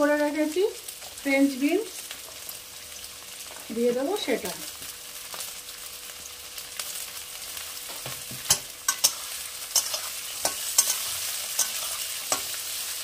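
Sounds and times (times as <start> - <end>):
vegetables sizzling in hot oil: 0.0 - 13.0
metal spatula scraping a pan: 8.4 - 12.9.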